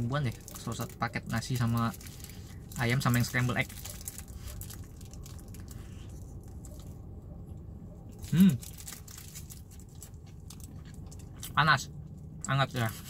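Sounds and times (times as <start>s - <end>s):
low background hum: 0.0s - 13.0s
person chewing: 8.1s - 11.6s.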